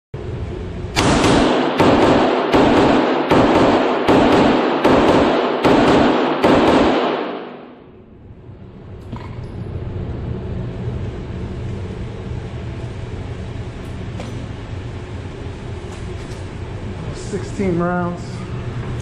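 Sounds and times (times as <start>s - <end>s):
pistol shots echoing indoors: 0.9s - 8.1s.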